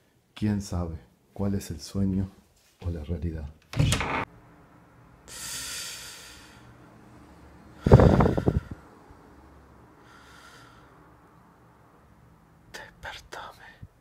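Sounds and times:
man breathing: 0:05.3 - 0:06.9, 0:07.7 - 0:08.9, 0:09.9 - 0:11.2.

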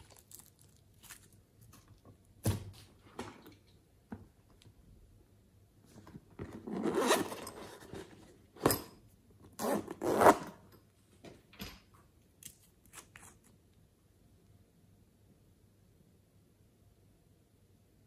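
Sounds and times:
handling rustle: 0:00.0 - 0:02.1
zipper pulled open: 0:06.5 - 0:07.8, 0:09.6 - 0:10.6.

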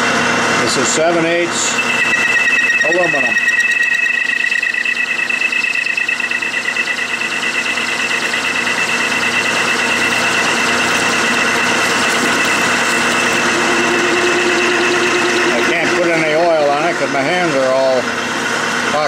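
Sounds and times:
lower machine tone: 0:00.7 - 0:18.2
lathe two-note whine: 0:01.4 - 0:18.2.

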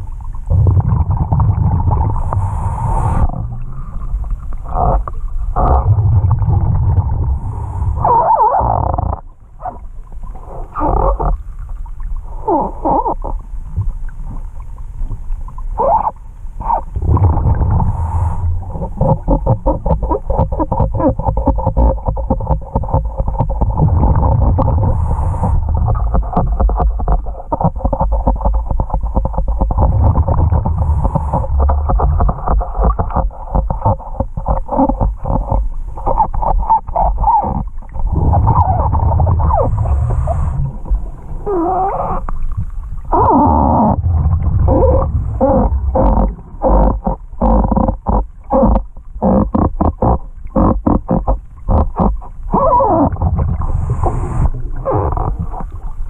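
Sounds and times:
exhaled bubbles gurgling: 0:00.0 - 0:56.0
steady hum: 0:13.5 - 0:21.5, 0:37.7 - 0:47.4.

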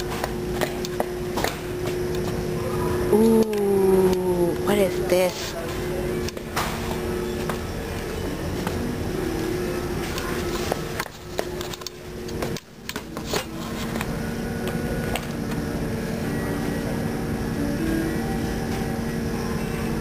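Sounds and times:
faint background music: 0:00.0 - 0:20.0
steady indoor hum: 0:00.0 - 0:20.0.

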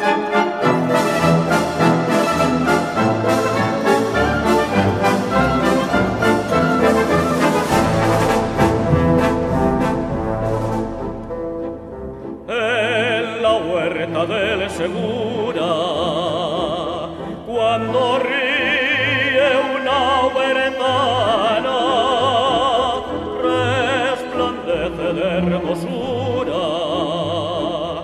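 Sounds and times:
orchestral accompaniment: 0:00.0 - 0:28.0
operatic voice singing with vibrato: 0:12.4 - 0:28.0.

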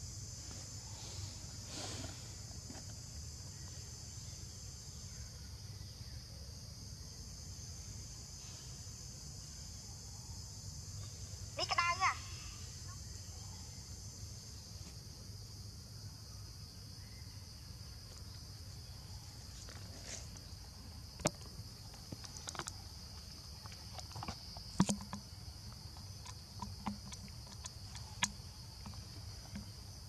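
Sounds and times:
insects droning: 0:00.0 - 0:30.0.

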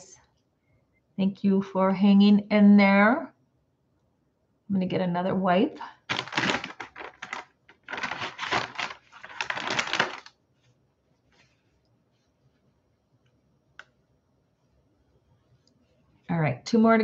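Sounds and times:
wipe packet crinkling: 0:06.0 - 0:12.3
wipe rubbing on lips: 0:10.5 - 0:12.8.

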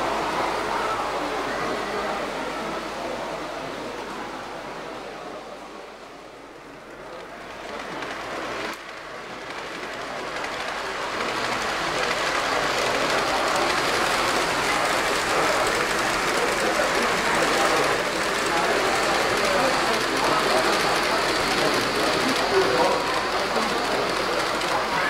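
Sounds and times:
model train rolling rattle: 0:06.9 - 0:25.0.

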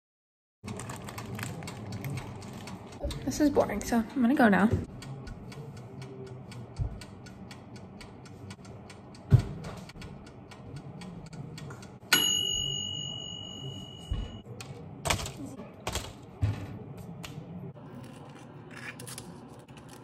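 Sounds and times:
toaster timer ticking: 0:00.7 - 0:13.8.

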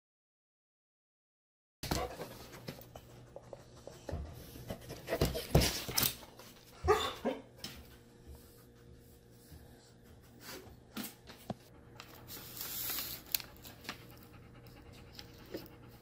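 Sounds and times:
dog panting: 0:13.3 - 0:16.0.

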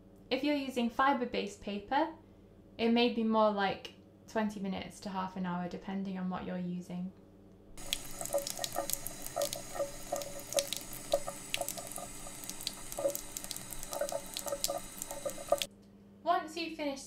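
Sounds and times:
tap water running into a tray: 0:07.8 - 0:15.7.

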